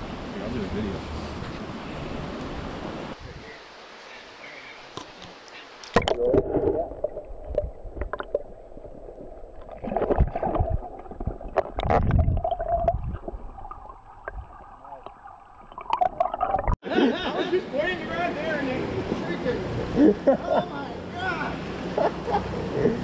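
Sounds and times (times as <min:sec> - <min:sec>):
water splash: 0:05.8 - 0:16.8.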